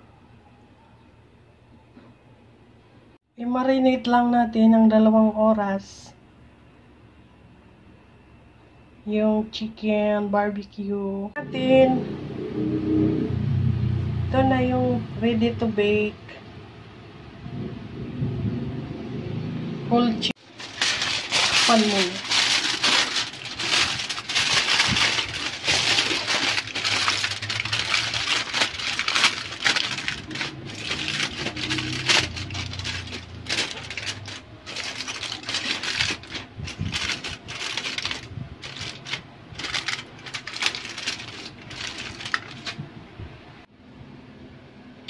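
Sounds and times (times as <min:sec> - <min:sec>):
aluminium foil crinkling: 0:20.4 - 0:42.8.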